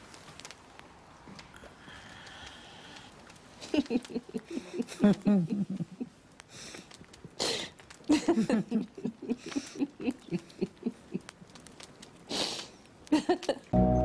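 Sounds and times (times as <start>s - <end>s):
breathy in-breaths: 1.5s - 3.3s, 6.5s - 7.9s, 12.3s - 12.9s
women laughing: 3.6s - 6.2s, 8.1s - 11.3s, 13.1s - 13.7s.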